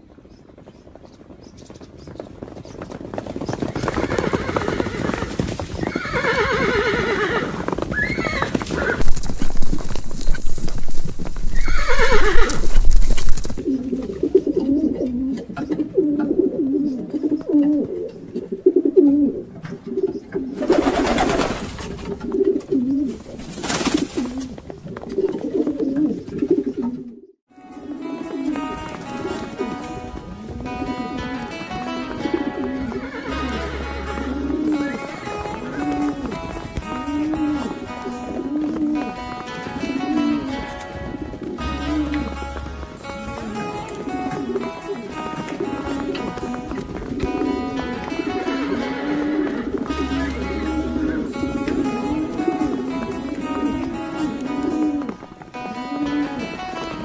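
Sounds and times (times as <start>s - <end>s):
pigeons cooing: 3.4s - 57.0s
horse whinnying: 3.8s - 9.2s, 11.5s - 12.8s, 32.5s - 35.0s.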